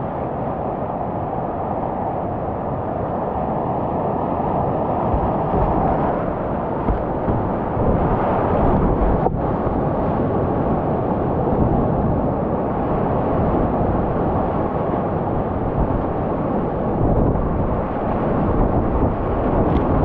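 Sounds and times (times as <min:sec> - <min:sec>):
water washing over kayak bow: 0:04.6 - 0:10.6.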